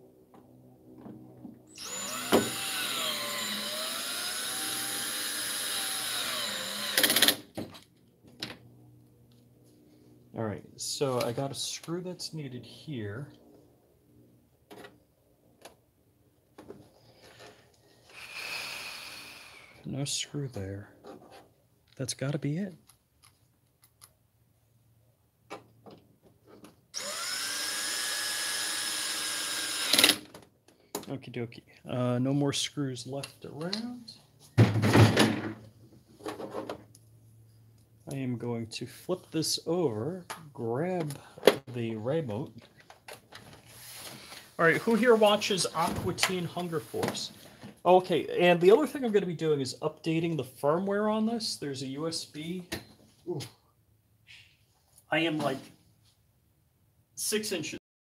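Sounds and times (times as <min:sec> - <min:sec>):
cordless drill motor whining: 0:01.7 - 0:07.4, 0:18.1 - 0:19.8, 0:26.9 - 0:30.2
drill clutch clicking: 0:01.8 - 0:07.4, 0:27.0 - 0:30.2.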